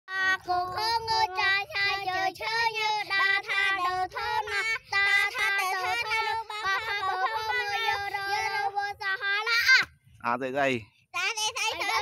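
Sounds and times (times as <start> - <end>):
child singing: 0.1 - 9.9, 11.1 - 12.0.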